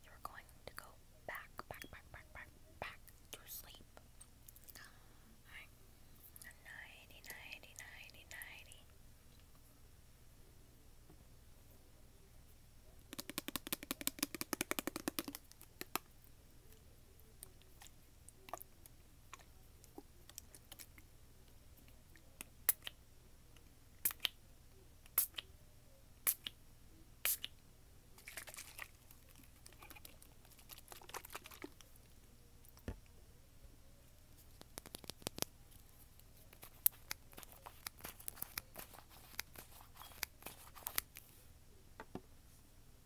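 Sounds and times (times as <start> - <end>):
crisp clicking and tapping: 13.1 - 16.1, 34.4 - 41.3.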